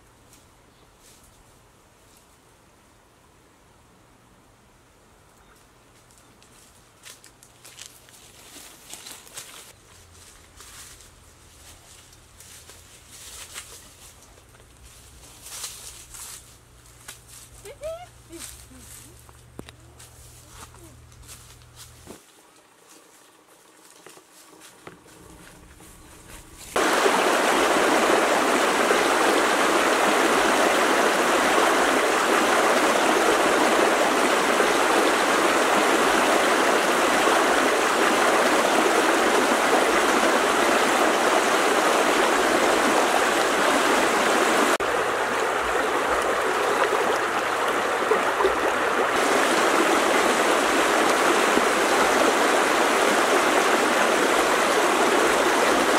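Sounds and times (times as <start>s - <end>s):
stream rushing over rocks: 26.8s - 55.9s.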